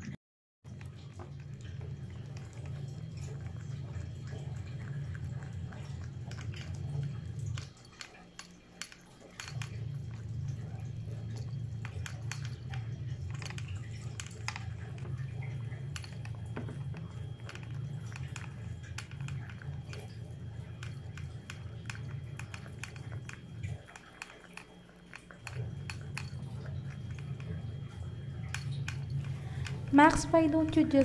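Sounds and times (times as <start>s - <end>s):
steady low hum: 0.0s - 31.0s
cat chewing and lapping: 0.7s - 31.0s.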